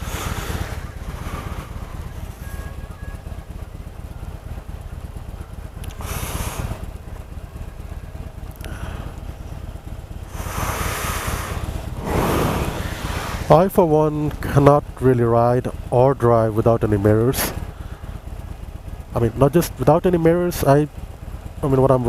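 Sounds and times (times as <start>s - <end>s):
motorcycle engine idling: 0.0s - 22.0s
rushes of hiss: 10.3s - 13.6s.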